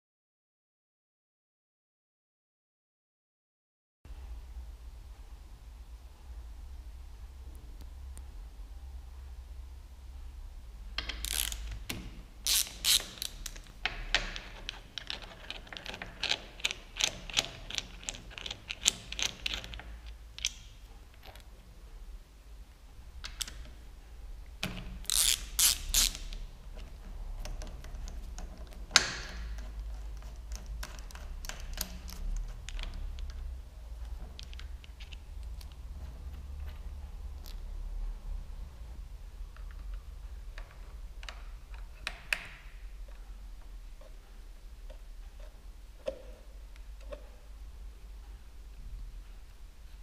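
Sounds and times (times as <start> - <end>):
hand ratchet clicking: 11.1 - 20.6, 25.0 - 26.4.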